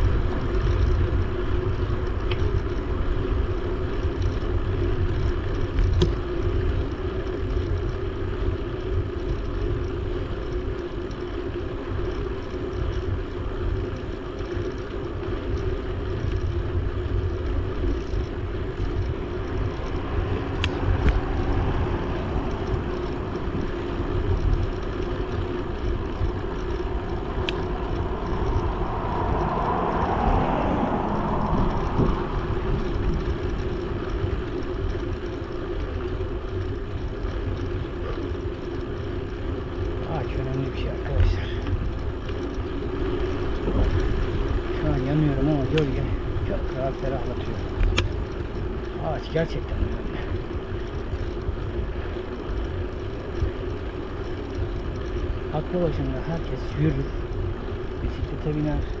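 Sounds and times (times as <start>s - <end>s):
tyres rolling on pavement: 0.0s - 59.0s
sharp ticks: 8.7s - 59.0s
wind rushing over microphone: 15.6s - 35.5s, 39.5s - 59.0s.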